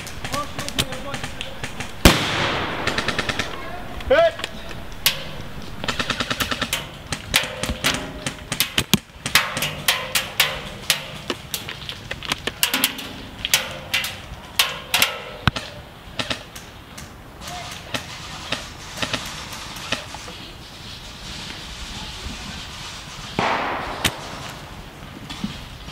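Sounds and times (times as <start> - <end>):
airsoft rifles firing bursts: 0.0 - 11.0.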